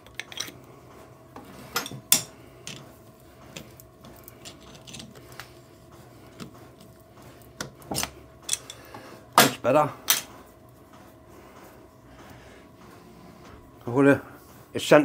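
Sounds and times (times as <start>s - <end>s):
faint steady hum: 0.0s - 15.0s
metallic clicks and scraping: 1.7s - 5.5s.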